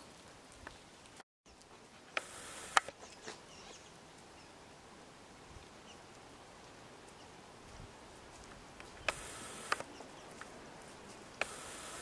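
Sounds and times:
faint outdoor background: 0:00.0 - 0:12.0
geese plucking grass: 0:01.6 - 0:03.6, 0:08.0 - 0:12.0.

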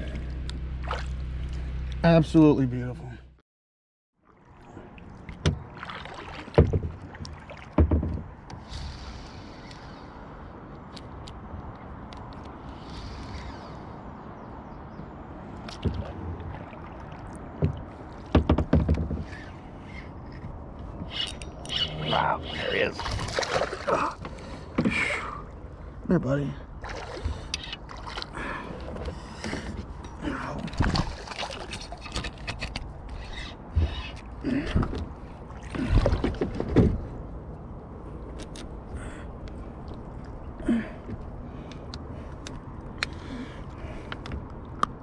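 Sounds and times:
kayak hull knocks and creaks: 0:05.3 - 0:08.6, 0:15.6 - 0:16.7, 0:17.5 - 0:19.6, 0:26.9 - 0:37.4
gear knocking in a kayak: 0:17.6 - 0:19.4.

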